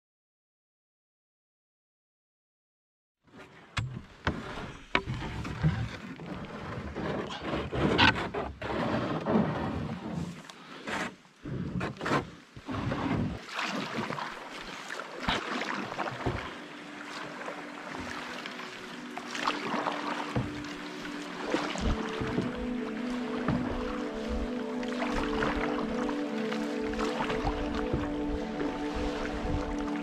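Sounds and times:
paddle strokes splashing: 3.3 - 30.0
steady musical tones: 16.5 - 30.0.

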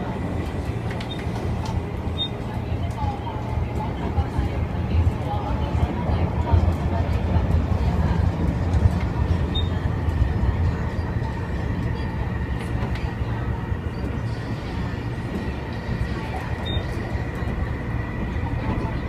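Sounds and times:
train wheels rumbling: 0.0 - 19.0.

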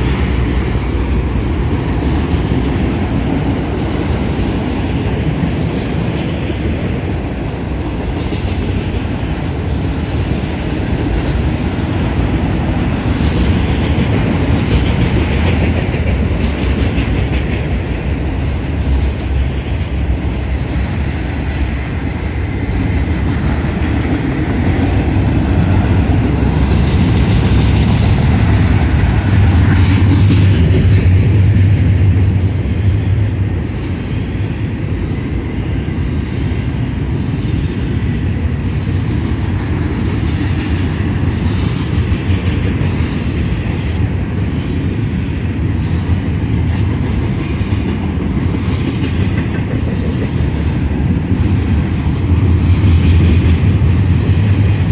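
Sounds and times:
train wheels rumbling on rails: 0.0 - 54.9
sharp rail clicks: 8.0 - 20.9.

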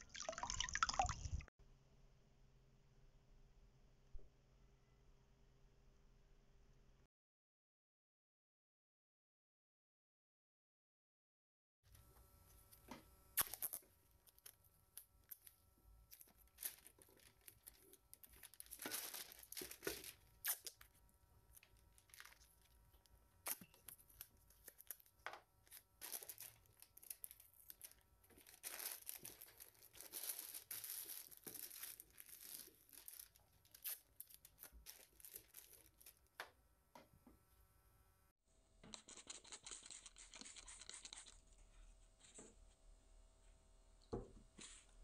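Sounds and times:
stiff paper crinkling: 15.2 - 36.4, 38.9 - 41.5.

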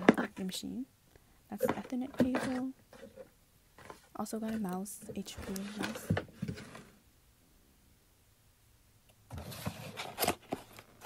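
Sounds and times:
handling noise: 1.5 - 7.0.

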